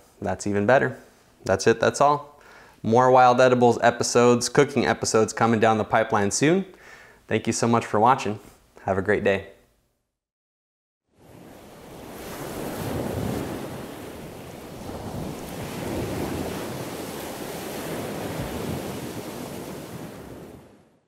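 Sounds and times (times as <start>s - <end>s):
surf washing onto pebble beach: 11.2s - 20.6s
wind rumbling on microphone: 11.2s - 20.7s.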